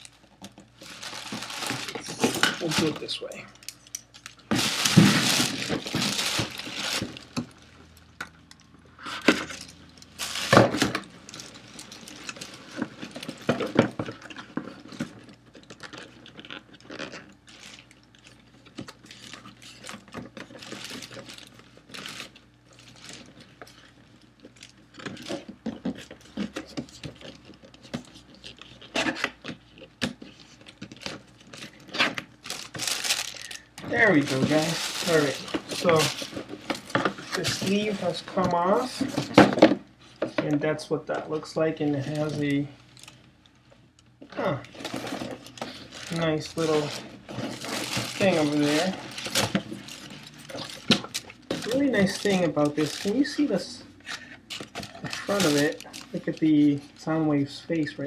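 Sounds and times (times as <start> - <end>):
cardboard scraping and rustling: 33.9 - 39.6, 44.7 - 53.6.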